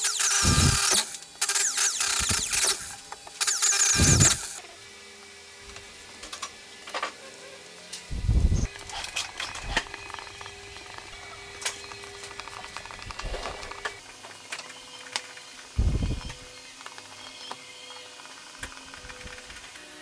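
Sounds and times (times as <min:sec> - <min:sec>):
small steel screws clicking: 0:00.0 - 0:04.6.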